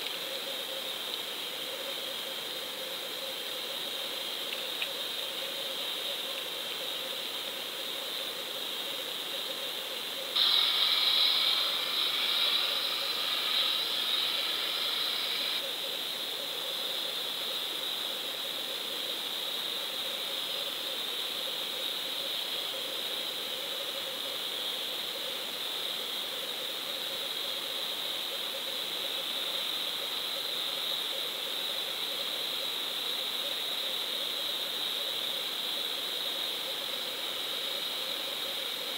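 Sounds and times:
underwater hiss: 10.4 - 15.6.

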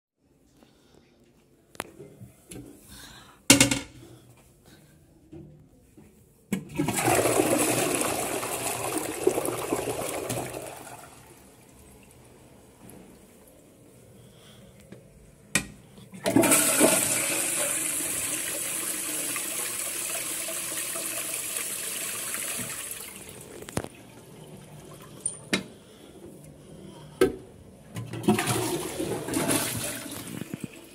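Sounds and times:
toilet flushing: 6.6 - 12.2, 16.1 - 25.7, 27.9 - 30.9.

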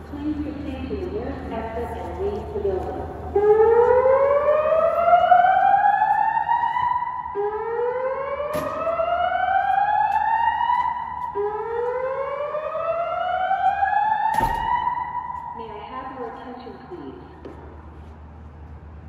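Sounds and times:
fire alarm whoop tone: 3.4 - 15.6.

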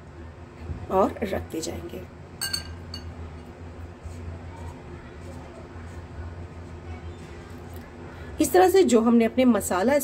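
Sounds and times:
steady low hum: 0.0 - 10.0
soft handling in flour: 3.6 - 8.4.

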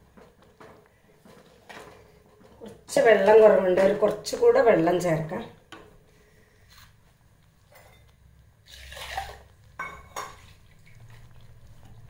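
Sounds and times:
water splashing into pot: 8.6 - 12.0.

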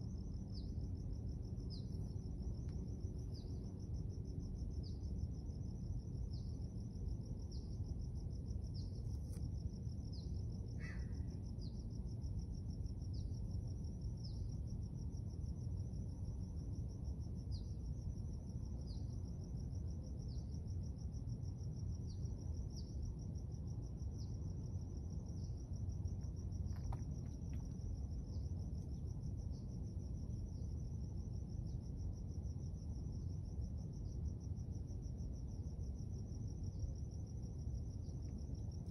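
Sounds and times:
insects trilling: 0.0 - 38.9
low outdoor rumble: 22.2 - 38.9.

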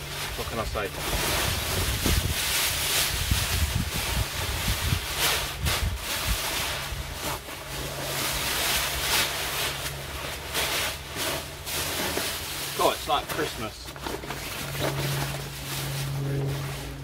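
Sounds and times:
plastic sheets crinkling: 0.0 - 17.0
wind rumble on microphone: 1.0 - 8.2.

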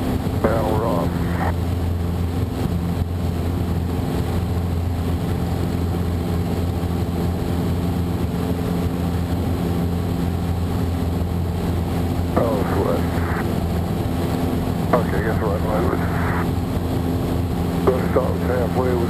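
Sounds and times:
airplane engine and propeller drone: 0.0 - 19.0.

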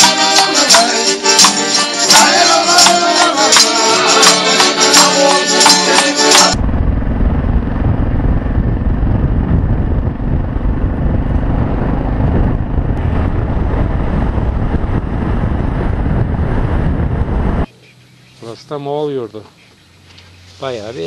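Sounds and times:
street music with accordion: 0.0 - 6.6
motorcycle engine: 5.6 - 18.2
wind buffeting microphone: 6.6 - 17.7.

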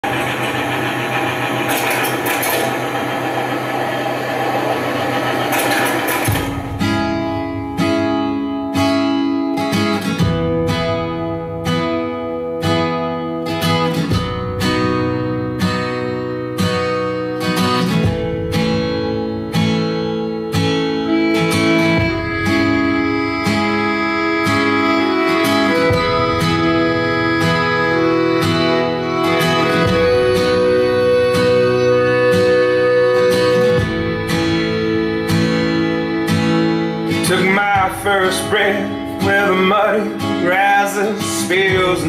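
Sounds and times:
dense noisy wash: 0.0 - 7.2
acoustic guitar strumming chords: 0.0 - 42.0.

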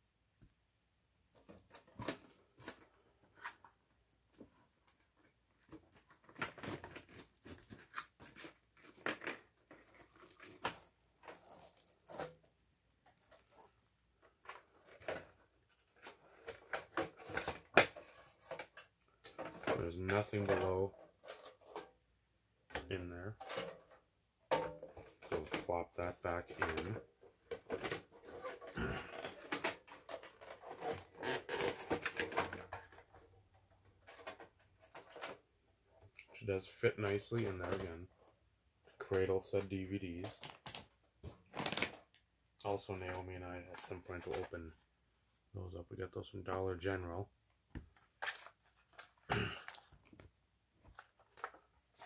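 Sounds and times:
packaging rustling and crinkling: 5.2 - 18.7, 40.2 - 42.2
paper packaging rustling: 40.2 - 42.1.

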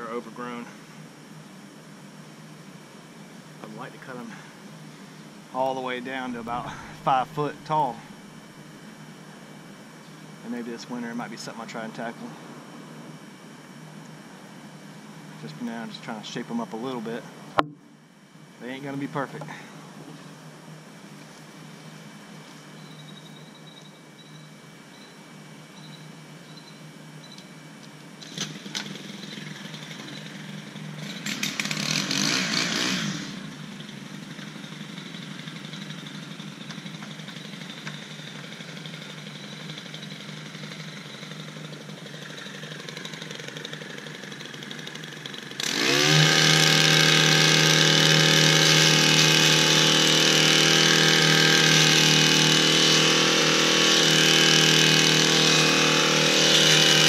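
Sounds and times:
hedge trimmer engine revving: 5.6 - 8.5, 28.2 - 57.0.

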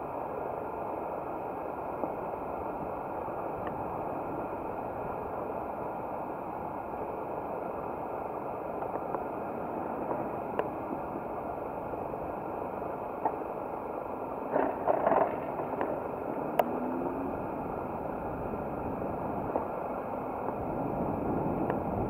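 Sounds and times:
wind noise: 1.8 - 22.0
bicycle tyre noise: 8.6 - 22.0
bicycle clicks: 14.5 - 16.7.

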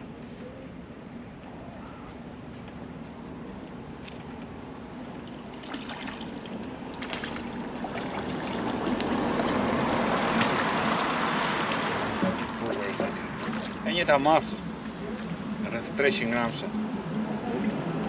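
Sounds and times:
water sloshing and splashing: 4.0 - 16.6.

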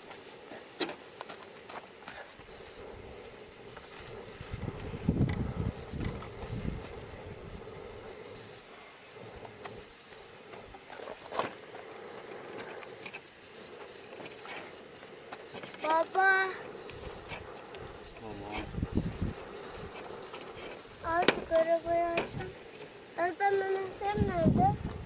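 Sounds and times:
wind buffeting microphone: 4.1 - 7.8, 18.6 - 20.0, 23.9 - 25.0.

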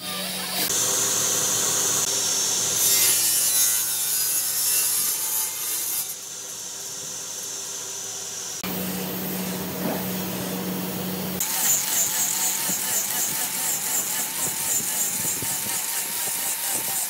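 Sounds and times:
electric tool hum: 0.0 - 17.0
tool rasping hardwood: 11.4 - 17.0.

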